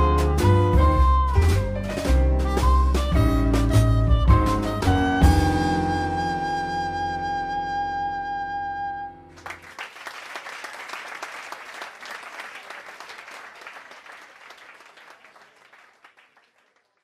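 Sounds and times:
audience applause: 0:09.3 - 0:17.0.

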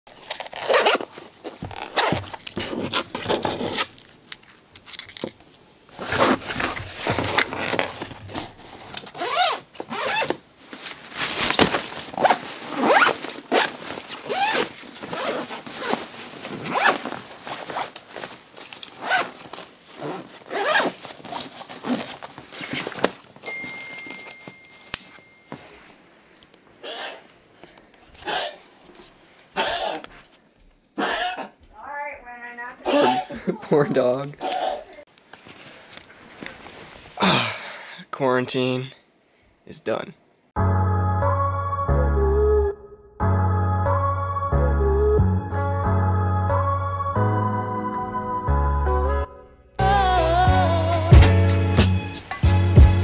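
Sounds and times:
zippers opening and closing: 0:00.1 - 0:04.0, 0:05.9 - 0:10.5, 0:11.2 - 0:24.4
bags being handled: 0:00.1 - 0:05.3, 0:05.9 - 0:26.0.

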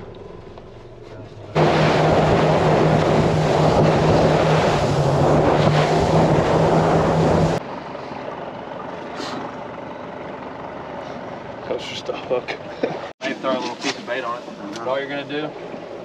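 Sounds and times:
motorboat engine hum: 0:00.0 - 0:16.0
rush of wind and water: 0:01.6 - 0:07.6.

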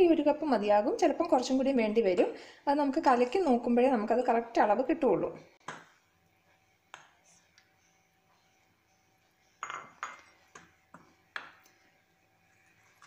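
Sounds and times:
spoon clinking against a bowl: 0:09.5 - 0:10.6.

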